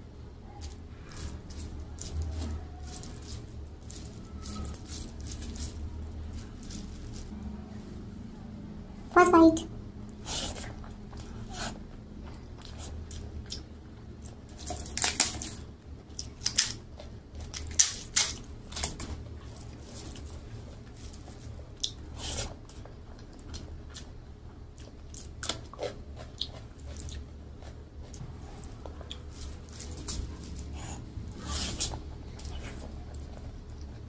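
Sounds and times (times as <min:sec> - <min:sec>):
chewing food: 0:00.5 - 0:07.4, 0:10.1 - 0:34.0
crunching crisp bites: 0:12.6 - 0:24.1.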